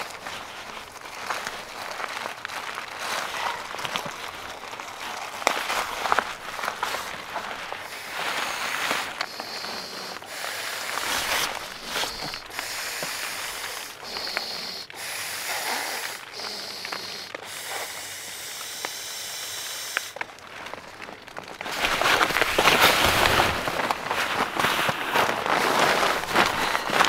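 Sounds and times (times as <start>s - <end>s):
breaths blowing into a valve: 6.7s - 20.2s.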